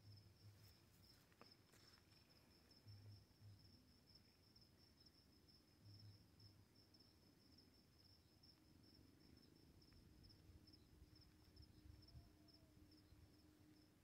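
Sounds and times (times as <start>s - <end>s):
crickets chirping: 0.0s - 14.0s
faint low rumble: 0.0s - 14.0s.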